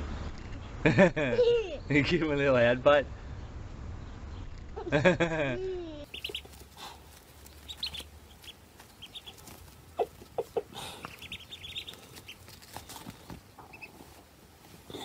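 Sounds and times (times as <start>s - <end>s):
ducklings peeping: 6.0s - 15.0s.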